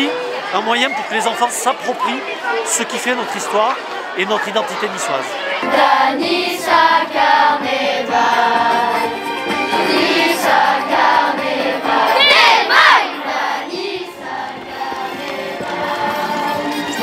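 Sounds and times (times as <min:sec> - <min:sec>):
children's choir singing: 0:04.0 - 0:17.0.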